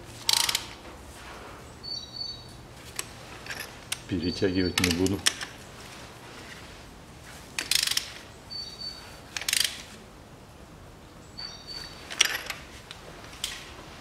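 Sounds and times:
ratchet wrench clicking: 0.2 - 0.8, 7.6 - 8.2, 9.4 - 9.8.

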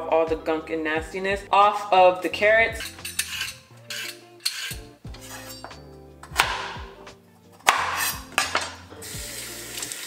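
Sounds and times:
background music with a beat: 2.7 - 9.9.

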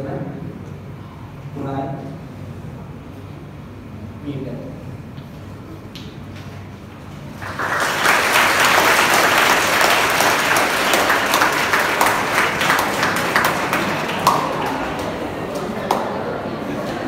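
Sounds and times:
audience applauding: 7.3 - 17.0.

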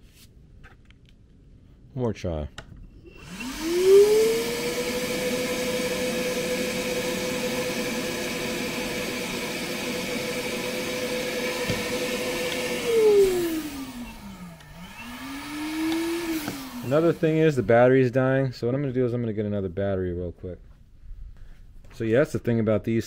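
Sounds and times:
vacuum motor whine: 3.0 - 17.7.

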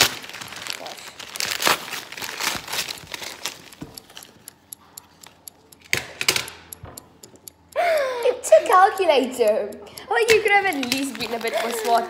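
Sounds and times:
wrapping paper crinkling and tearing: 0.0 - 4.2, 10.7 - 12.0.

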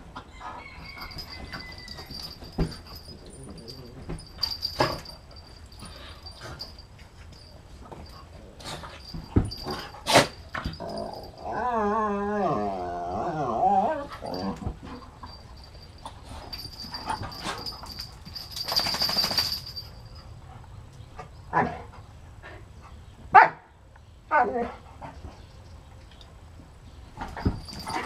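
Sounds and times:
dog whine-growl: 10.8 - 14.6
dogs scuffling: 14.3 - 19.8, 27.1 - 28.0.

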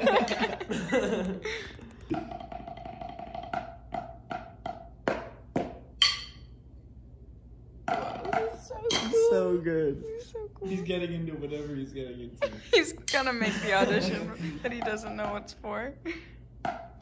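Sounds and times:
drumsticks striking practice pad: 2.0 - 6.5, 7.8 - 9.2, 16.6 - 17.0.

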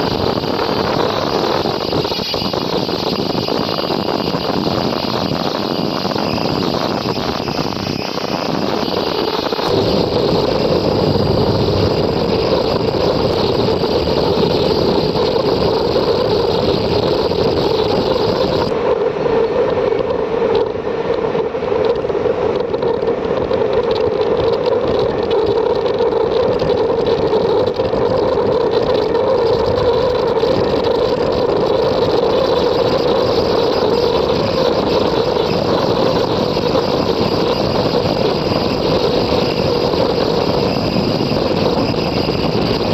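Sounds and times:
high machine hiss: 0.0 - 18.7
quilting machine drone: 0.0 - 42.9.

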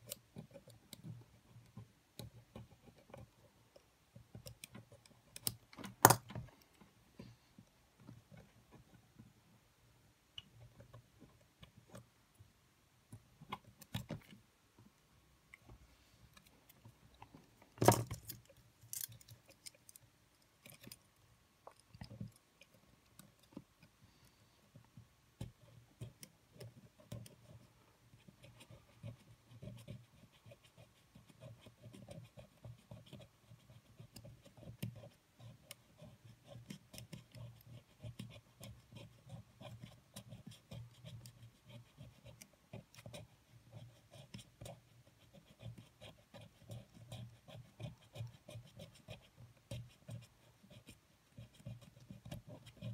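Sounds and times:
metal tool clicking and scraping: 17.8 - 20.0.

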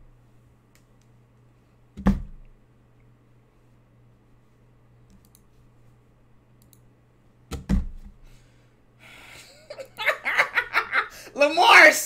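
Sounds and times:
low steady hum: 0.0 - 12.0
faint clicks: 5.1 - 5.5, 6.6 - 6.9.

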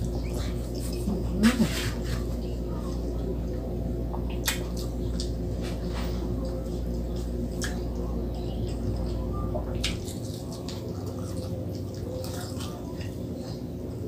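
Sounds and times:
wet squishy chewing: 0.0 - 14.0
fried food clicks: 4.2 - 5.4.

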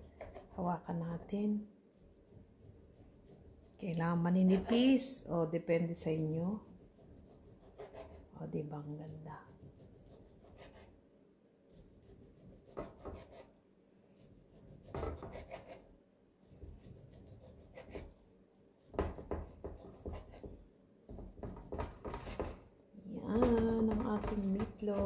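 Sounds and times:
knife sawing through meatloaf: 6.6 - 8.3, 14.3 - 15.9, 16.5 - 18.2
knife knocking on cutting board: 18.9 - 22.6.

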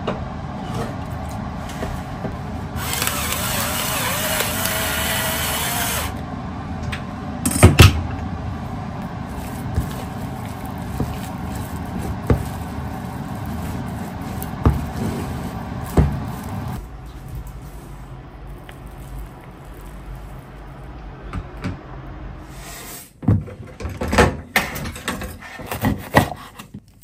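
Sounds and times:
spatula scraping and squishing: 9.1 - 20.7.

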